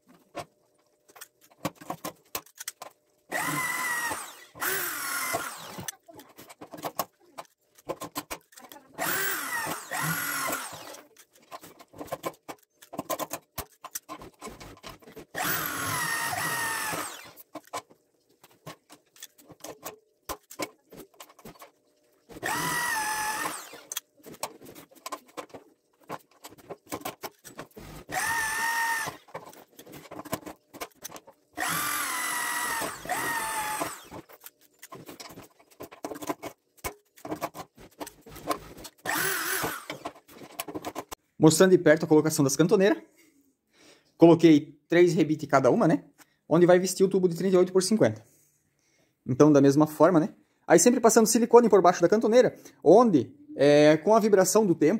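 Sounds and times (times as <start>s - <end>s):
electric drill boring metal: 3.3s - 5.9s, 9.0s - 11.1s, 15.3s - 17.4s, 22.3s - 24.0s, 27.8s - 29.3s, 31.6s - 34.3s, 39.0s - 40.2s.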